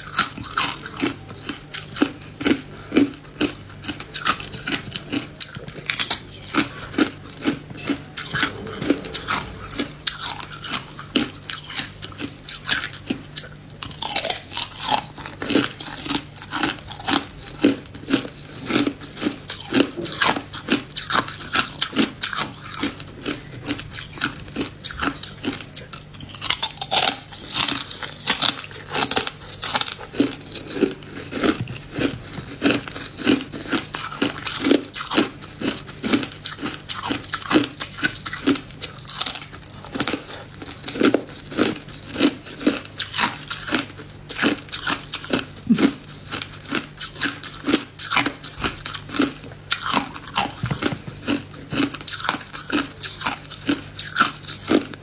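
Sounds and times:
person crunching ice: 26.3s - 54.9s.

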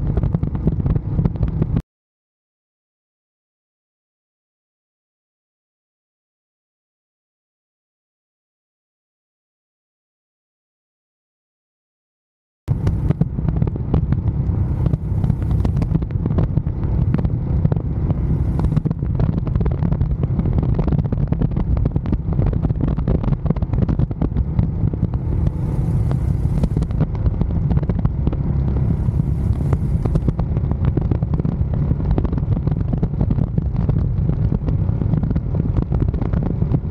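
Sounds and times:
motorcycle engine rumbling: 0.0s - 1.8s, 12.7s - 36.9s
wind rushing over microphone: 0.0s - 1.8s, 12.7s - 36.9s.

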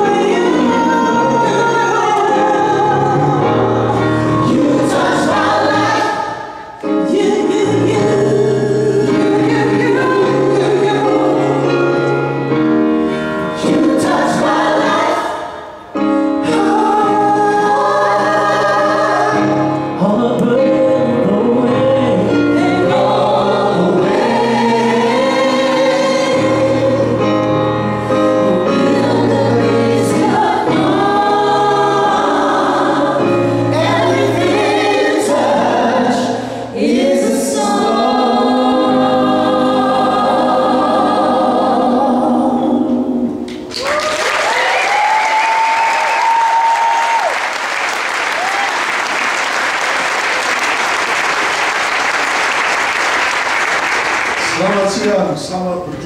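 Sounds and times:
woman singing lead: 0.0s - 12.0s, 13.6s - 27.3s
gospel group singing in harmony: 0.0s - 55.0s.

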